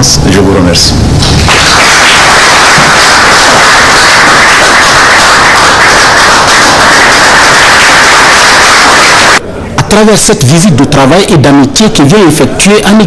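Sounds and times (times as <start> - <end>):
people clapping: 1.2 - 9.4.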